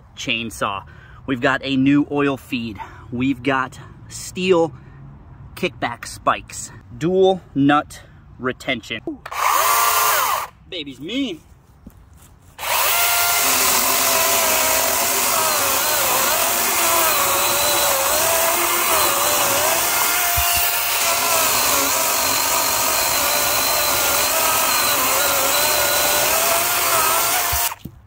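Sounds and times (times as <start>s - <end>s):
electric chainsaw cutting log: 9.3s - 10.5s, 12.6s - 27.9s.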